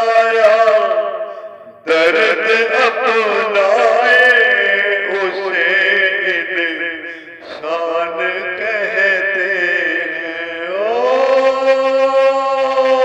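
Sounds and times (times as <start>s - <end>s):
man singing devotional song: 0.0s - 13.0s.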